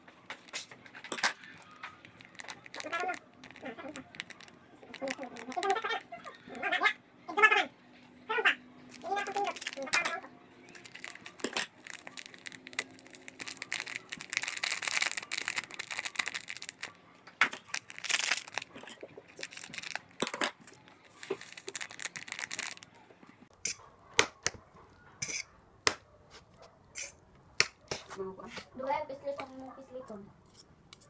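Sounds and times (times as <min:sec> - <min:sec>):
foil sachet crinkling: 0:00.3 - 0:06.3, 0:08.9 - 0:22.9
scissors cutting foil: 0:00.4 - 0:06.0, 0:09.0 - 0:22.8, 0:27.0 - 0:27.2.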